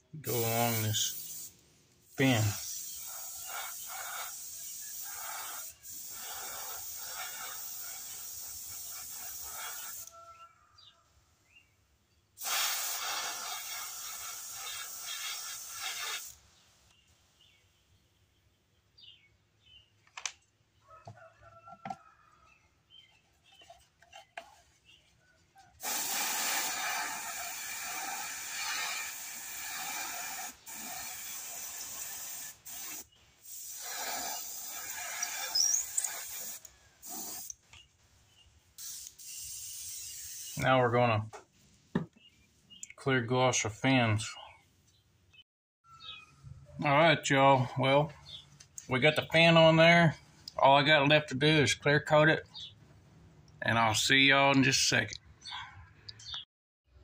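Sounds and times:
airbrush spraying: 0:00.3 - 0:10.1, 0:12.4 - 0:16.4, 0:25.8 - 0:37.6, 0:38.8 - 0:40.7
faint handling knocks and rubs: 0:23.0 - 0:25.7.

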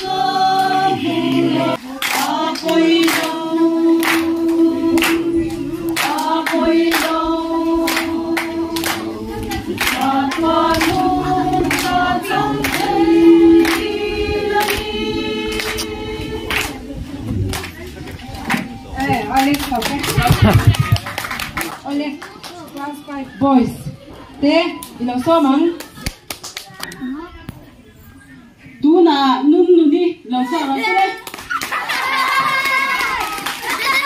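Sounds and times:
choir singing long notes: 0:00.0 - 0:17.6.

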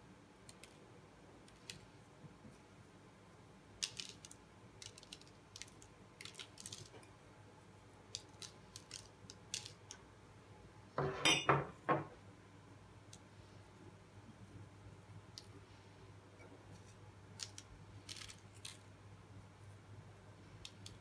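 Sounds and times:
seeds sprinkled on paper: 0:03.7 - 0:07.1, 0:08.0 - 0:10.0, 0:16.7 - 0:21.0
small dish clattering: 0:11.0 - 0:12.1.

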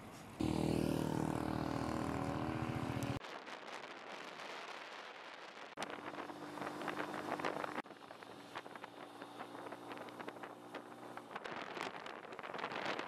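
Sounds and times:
faint engine hum: 0:00.0 - 0:03.2, 0:05.8 - 0:12.1
vehicle engine running: 0:00.4 - 0:03.2, 0:05.9 - 0:11.4.

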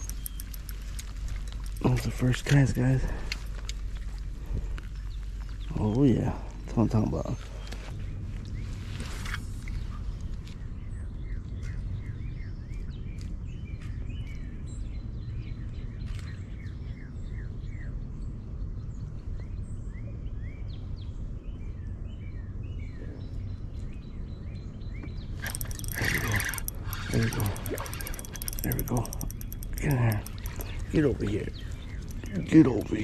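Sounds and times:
fishing reel clicking: 0:00.0 - 0:03.6, 0:25.4 - 0:33.0
steady low rumble: 0:00.0 - 0:09.0
small birds chirping: 0:00.0 - 0:17.6, 0:22.4 - 0:33.0.

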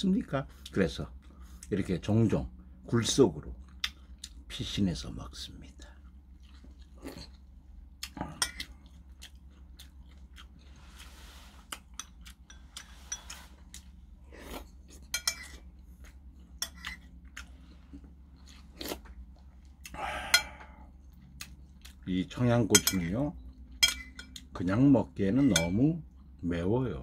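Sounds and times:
quiet chewing: 0:03.5 - 0:04.6, 0:05.6 - 0:22.3, 0:26.0 - 0:26.4
spoon clinking on ceramic bowl: 0:15.1 - 0:15.6, 0:22.7 - 0:23.1, 0:23.8 - 0:24.4, 0:25.4 - 0:25.9.

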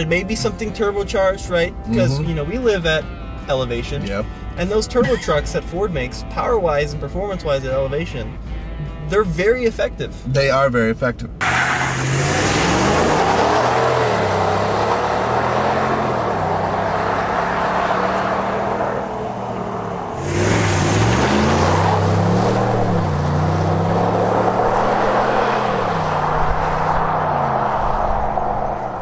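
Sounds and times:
pickup truck engine accelerating: 0:11.4 - 0:29.0.

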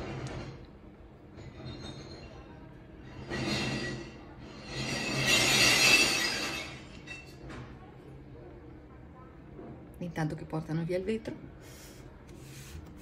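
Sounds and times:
glass bottles crashing and clattering: 0:04.8 - 0:07.3.

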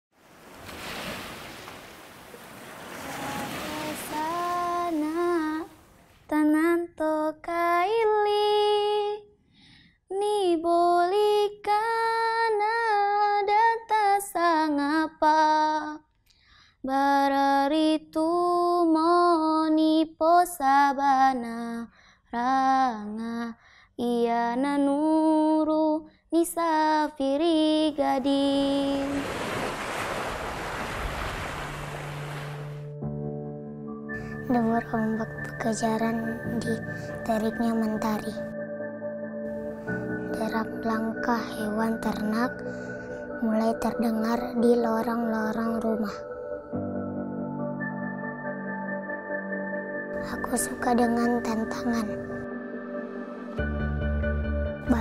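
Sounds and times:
sea waves washing on shore: 0:00.1 - 0:05.8, 0:28.2 - 0:32.8
woman singing unaccompanied: 0:02.9 - 0:09.3, 0:10.1 - 0:16.0, 0:16.8 - 0:29.5, 0:34.4 - 0:38.5, 0:40.3 - 0:42.6, 0:43.4 - 0:46.3, 0:50.2 - 0:52.3.

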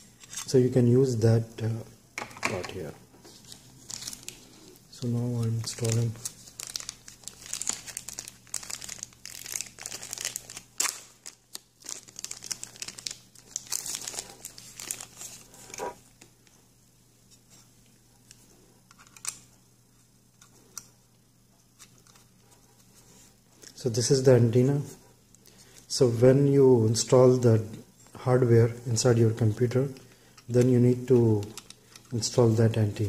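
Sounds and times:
plastic bag crinkling: 0:03.3 - 0:04.8, 0:05.4 - 0:16.0.

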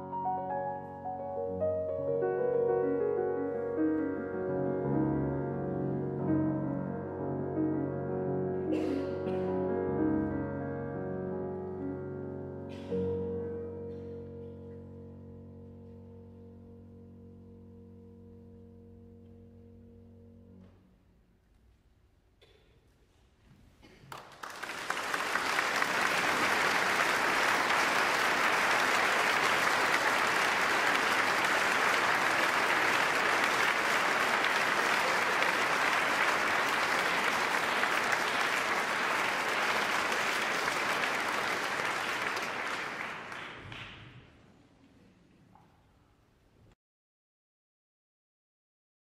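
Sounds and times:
audience applauding: 0:23.8 - 0:44.3.

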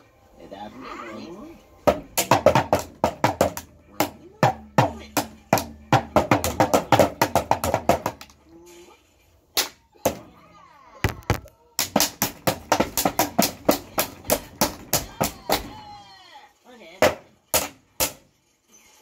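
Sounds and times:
sharp hand slaps: 0:09.6 - 0:10.2, 0:11.8 - 0:15.7.

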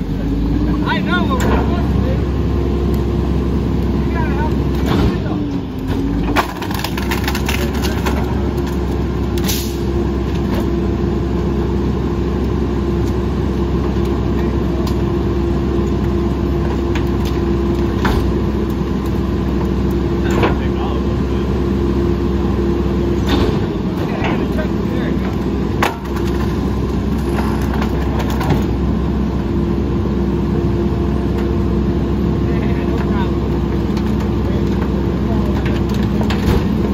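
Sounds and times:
garbage truck engine and hydraulics: 0:00.0 - 0:36.9
branches crackling: 0:05.8 - 0:09.5.

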